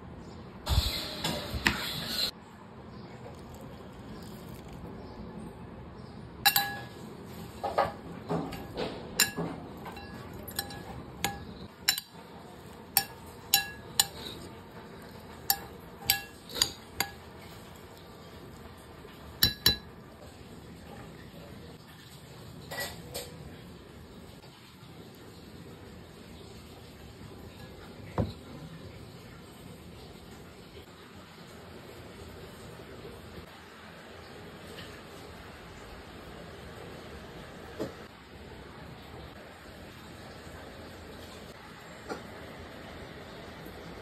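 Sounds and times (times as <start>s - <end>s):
utensils clinking against dish: 6.5s - 17.6s, 19.4s - 19.9s.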